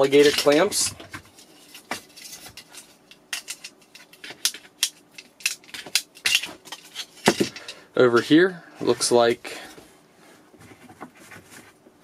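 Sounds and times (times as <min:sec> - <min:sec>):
clamps and cables clattering: 0:00.0 - 0:07.8.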